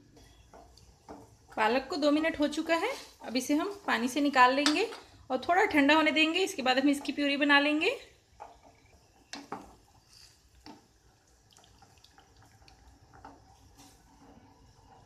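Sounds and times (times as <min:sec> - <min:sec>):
water dripping and splashing: 0:10.5 - 0:14.2.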